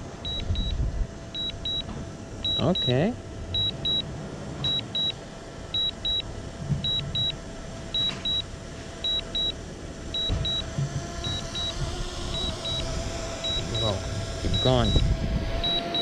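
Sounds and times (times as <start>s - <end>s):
faint steady hum: 0.0s - 16.0s
remote controller double beeps: 0.2s - 0.8s, 1.4s - 5.2s, 5.8s - 9.6s, 10.2s - 16.0s.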